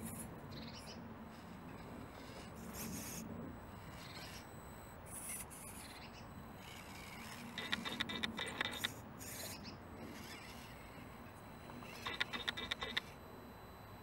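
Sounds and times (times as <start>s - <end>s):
toy car motor whirring: 1.3s - 3.2s, 3.8s - 13.2s.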